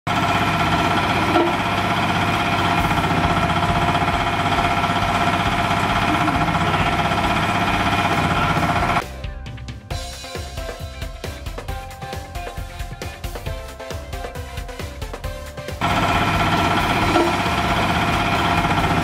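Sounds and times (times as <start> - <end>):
motor hum: 0.1 - 9.0, 15.3 - 19.0
vibration motor rattling: 0.1 - 9.0, 15.5 - 19.0.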